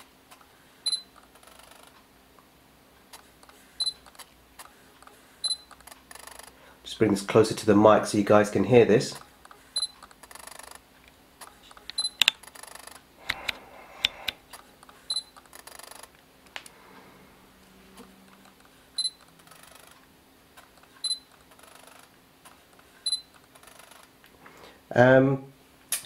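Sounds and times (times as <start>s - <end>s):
jittery mechanical noise: 0.3s - 2.1s, 3.1s - 6.7s, 8.3s - 13.1s, 14.4s - 16.2s, 17.8s - 24.2s
lens autofocus clicking and chattering: 3.1s - 6.6s
camera focus beep: 3.8s - 4.2s, 5.4s - 6.5s, 11.9s - 13.0s, 15.1s - 16.1s, 19.0s - 20.0s, 21.0s - 22.0s, 23.0s - 23.4s.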